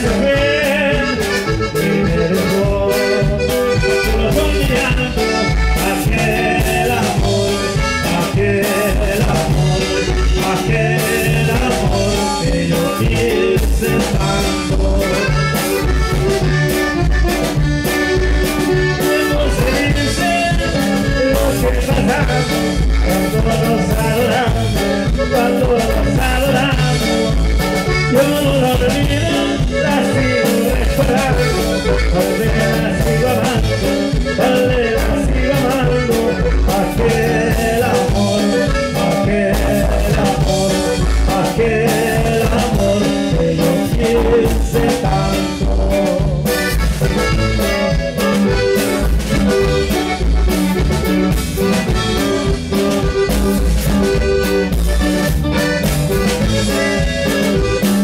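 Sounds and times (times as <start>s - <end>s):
man singing: 0.0s - 16.6s, 18.8s - 48.6s
bass and drums: 0.0s - 58.0s
button accordion melody: 0.0s - 58.0s.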